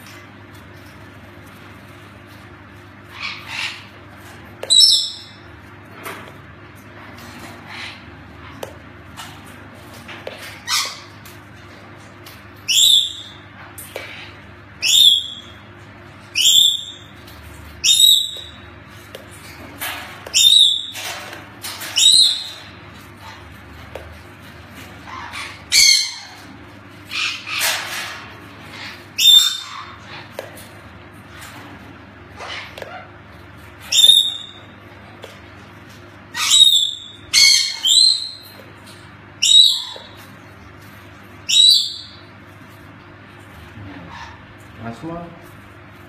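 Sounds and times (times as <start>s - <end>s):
macaw squawking: 4.6s - 5.4s, 17.8s - 18.6s, 20.3s - 21.0s, 25.0s - 26.4s, 28.6s - 30.3s, 36.3s - 38.6s, 39.4s - 40.2s, 41.5s - 42.2s.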